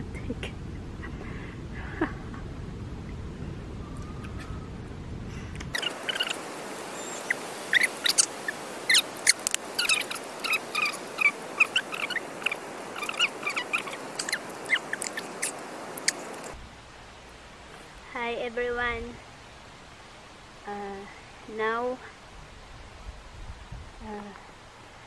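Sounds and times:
background hiss: 0:00.0 - 0:25.0
small birds chirping: 0:05.6 - 0:16.6.

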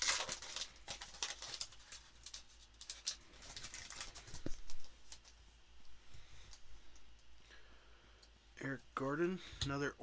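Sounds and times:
foil wrapper crinkling: 0:00.0 - 0:05.4.

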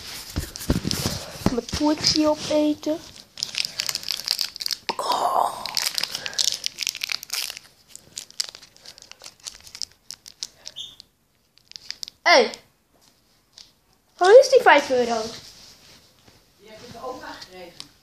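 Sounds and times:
plastic wrapper crinkling: 0:00.2 - 0:12.3.

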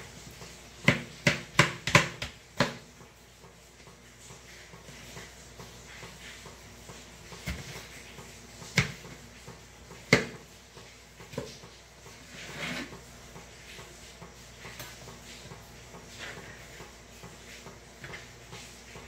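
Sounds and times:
knife scraping cutting board: 0:12.2 - 0:13.0.

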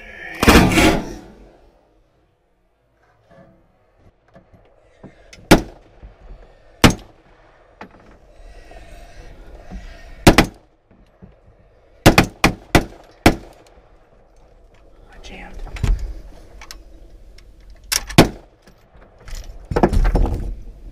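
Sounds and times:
rifle shots: 0:00.4 - 0:01.2, 0:05.5 - 0:05.8, 0:12.0 - 0:13.6.

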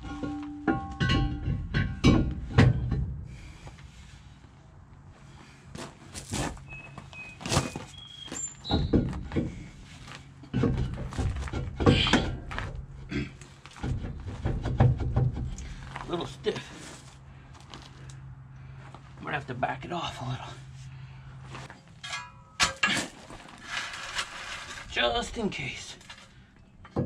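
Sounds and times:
metal tools knocking and clanking: 0:00.0 - 0:03.1, 0:10.4 - 0:12.7, 0:22.0 - 0:23.1, 0:26.8 - 0:27.0.

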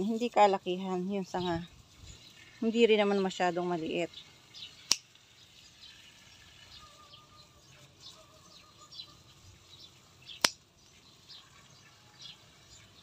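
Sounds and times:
faint bird chirps: 0:04.1 - 0:13.0
scissors snipping a stem: 0:10.4 - 0:10.6.

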